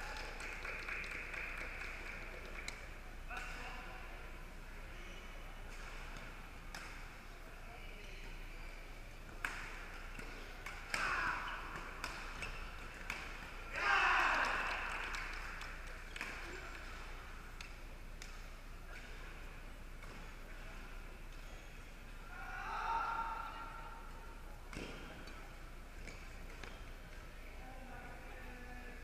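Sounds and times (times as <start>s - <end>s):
rackets striking a shuttlecock: 5.7s - 7.2s, 9.3s - 13.8s, 14.5s - 19.4s, 20.0s - 20.4s, 24.7s - 25.4s
people shouting: 10.9s - 11.7s, 13.7s - 14.8s.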